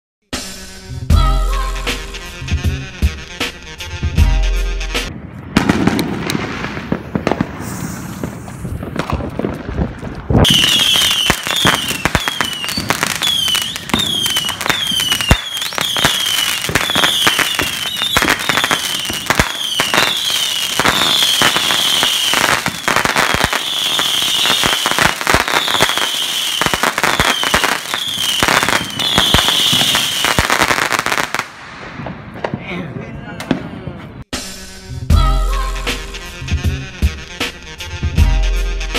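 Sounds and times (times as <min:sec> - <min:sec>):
fireworks falling whistles: 0:05.1 - 0:32.2
fireworks crackling pops: 0:05.1 - 0:32.7.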